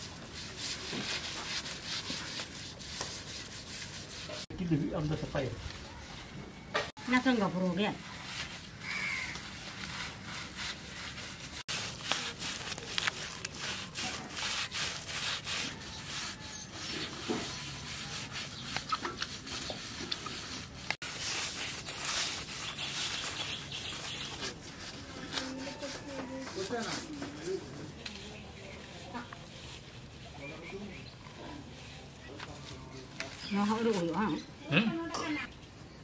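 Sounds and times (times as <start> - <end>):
leaves scrubbing fish skin: 0.0 - 4.5, 7.2 - 30.5.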